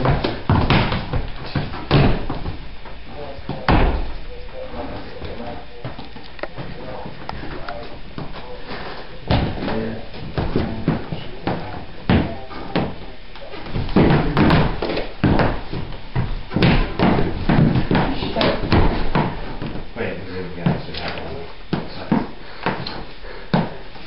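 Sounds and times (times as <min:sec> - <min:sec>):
irregular thumps and bangs: 0:00.0 - 0:04.2, 0:13.6 - 0:19.9
voices: 0:03.1 - 0:14.6.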